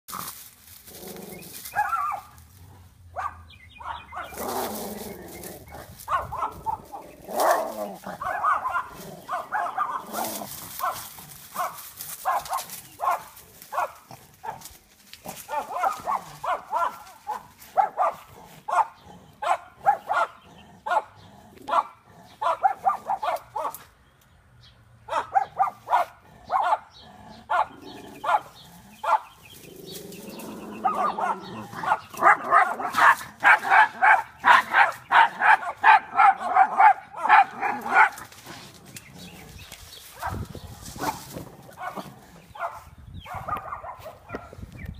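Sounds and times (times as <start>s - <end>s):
dog yapping: 1.7s - 2.3s, 3.2s - 4.6s, 5.7s - 11.0s, 15.5s - 21.1s, 21.7s - 23.8s, 30.8s - 38.2s.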